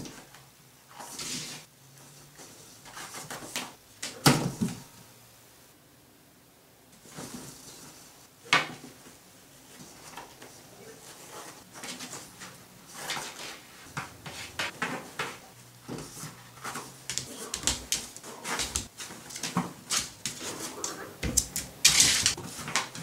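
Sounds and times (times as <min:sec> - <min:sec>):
toilet paper rustling and tearing: 0:11.0 - 0:23.0.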